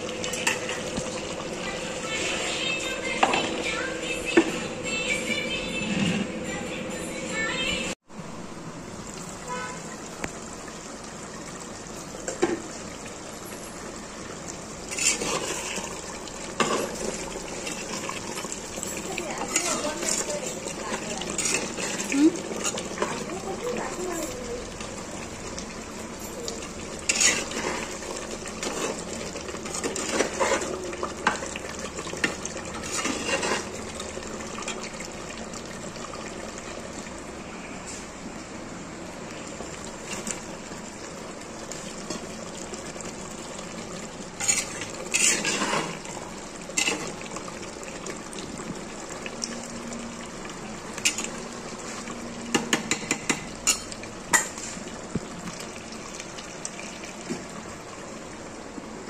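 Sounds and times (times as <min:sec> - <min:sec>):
curry sizzling in clay pot: 0:00.0 - 0:05.9, 0:08.7 - 0:59.0
metal spatula scraping pot: 0:14.9 - 0:16.0, 0:16.6 - 0:23.3, 0:27.0 - 0:30.8, 0:32.8 - 0:33.8, 0:44.4 - 0:46.0, 0:46.8 - 0:47.1.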